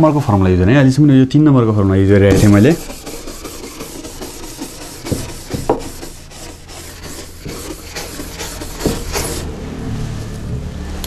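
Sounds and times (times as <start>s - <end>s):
duster wiping whiteboard: 0.0s - 0.5s, 2.3s - 9.5s
loud bumps: 2.3s - 9.4s.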